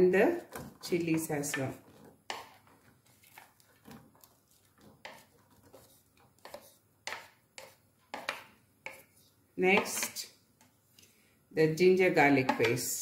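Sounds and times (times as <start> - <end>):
wooden spatula scraping metal plate: 0.0 - 10.2.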